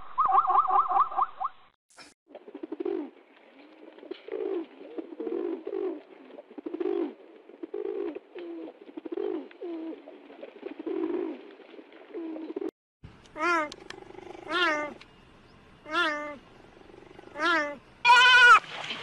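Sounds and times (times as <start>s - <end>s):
pigeon cooing: 2.5s - 3.2s, 3.8s - 11.4s, 12.1s - 12.7s, 13.4s - 15.0s, 15.9s - 17.8s.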